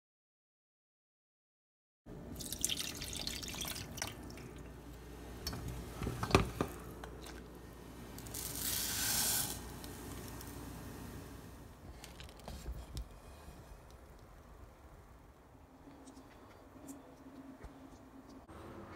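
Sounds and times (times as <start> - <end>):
water boiling in saucepan: 2.3 - 11.7.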